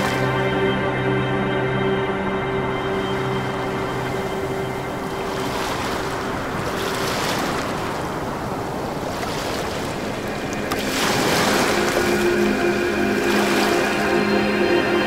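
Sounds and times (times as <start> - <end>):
soft held music drone: 0.0 - 15.0
rushing surf-like noise: 2.0 - 15.0.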